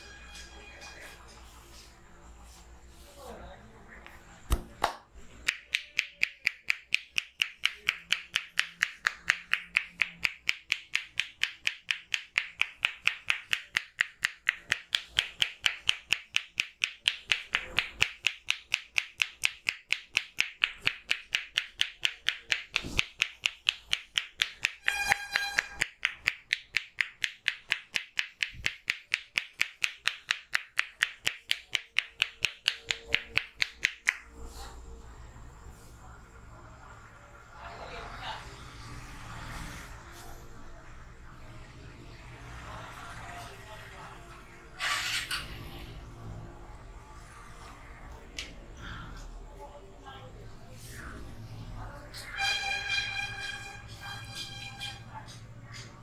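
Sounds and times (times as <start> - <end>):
palms tapping on head: 5.4 - 34.2.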